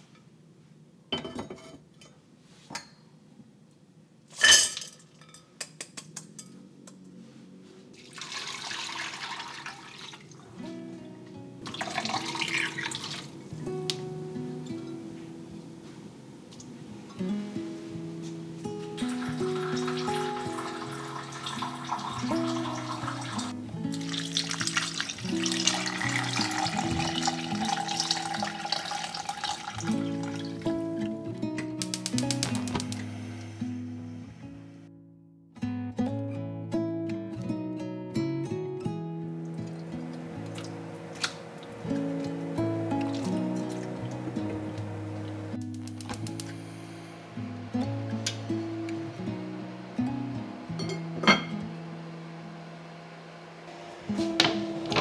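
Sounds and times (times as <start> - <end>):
water pouring into pot: 8.0 - 10.4, 11.6 - 13.3, 19.1 - 30.6
soft background music: 10.4 - 35.0, 35.7 - 52.5.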